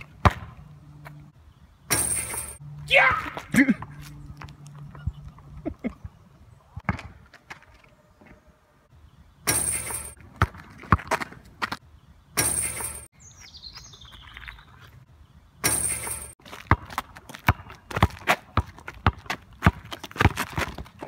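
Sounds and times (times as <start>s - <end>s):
basketball bouncing on asphalt: 0.0s - 1.2s, 6.8s - 7.7s, 9.5s - 11.8s, 15.6s - 21.0s
bird chirping: 8.0s - 10.1s, 11.8s - 16.1s.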